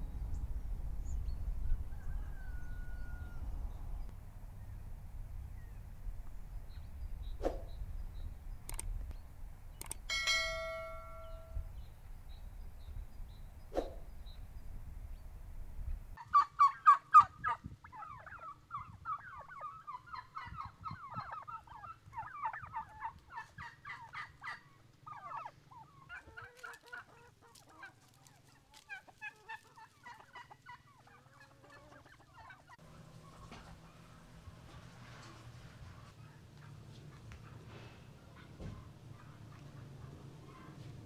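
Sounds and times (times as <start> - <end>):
turkeys gobbling: 16.2 - 34.8, 35.8 - 40.9.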